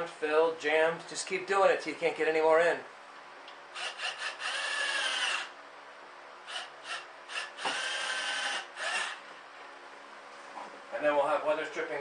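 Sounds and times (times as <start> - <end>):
cordless drill driving screws: 3.8 - 5.5, 6.5 - 9.2.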